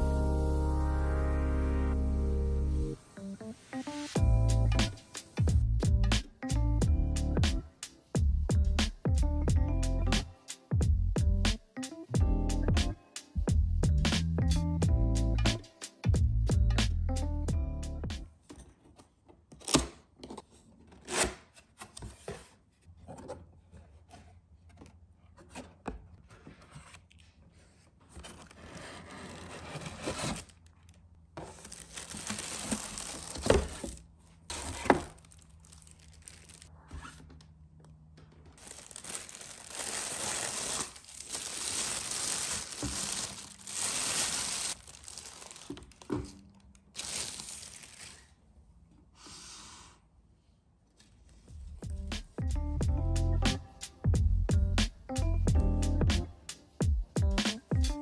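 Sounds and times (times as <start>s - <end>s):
plastic and tissue wrapping rustling: 27.7s - 37.2s, 38.5s - 48.4s.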